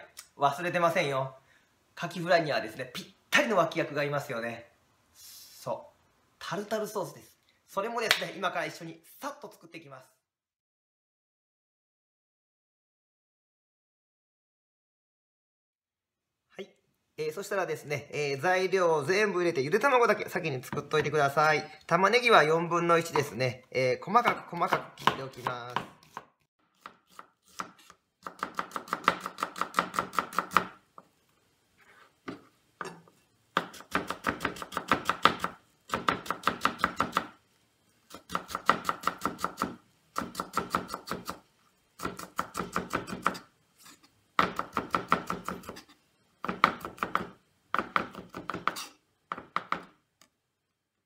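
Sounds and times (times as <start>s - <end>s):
knife chopping on cutting board: 24.2s - 30.8s, 33.6s - 37.3s, 42.0s - 43.4s, 44.4s - 50.0s.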